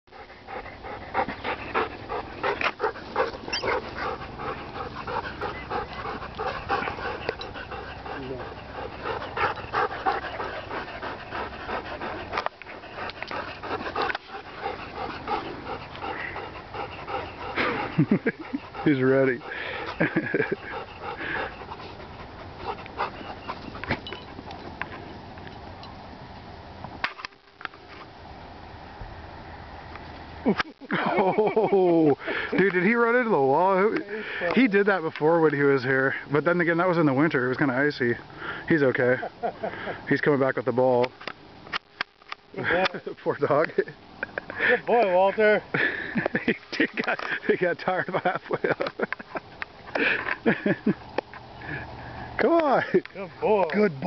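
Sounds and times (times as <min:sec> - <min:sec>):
outdoor ambience: 0:00.0 - 0:54.0
dog panting: 0:00.1 - 0:25.1.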